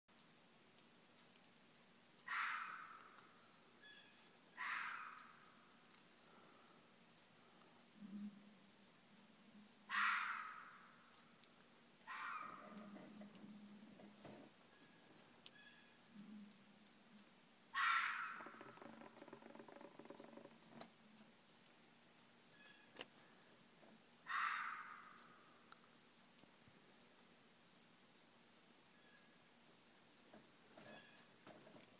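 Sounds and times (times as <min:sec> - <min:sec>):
insects chirping: 0:00.1 - 0:31.9
fox calling harshly: 0:02.3 - 0:03.0, 0:04.6 - 0:05.3, 0:09.9 - 0:10.8, 0:12.1 - 0:12.8, 0:17.7 - 0:18.5, 0:24.3 - 0:25.1.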